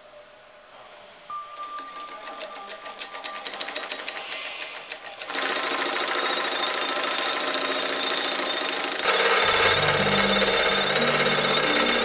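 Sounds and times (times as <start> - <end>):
sewing machine stitching: 1.8 - 12.0
thin steady whine: 6.0 - 12.0.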